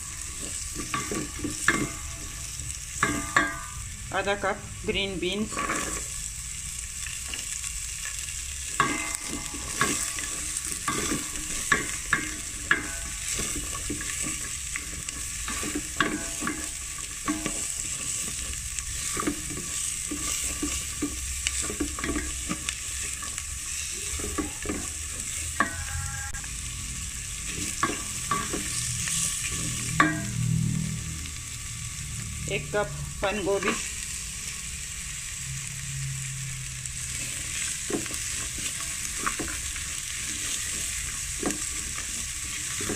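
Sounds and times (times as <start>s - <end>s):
spatula scraping and knocking pot: 0.0s - 3.8s, 5.4s - 6.1s, 8.8s - 26.4s, 27.5s - 30.4s, 37.2s - 42.9s
vegetables sizzling in pot: 0.0s - 42.9s.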